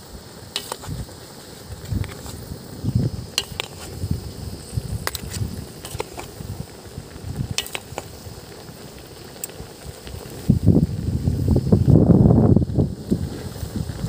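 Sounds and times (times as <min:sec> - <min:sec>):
low uneven simmering rumble: 0:00.0 - 0:14.0
metal ladle clinking against wok: 0:03.4 - 0:03.8.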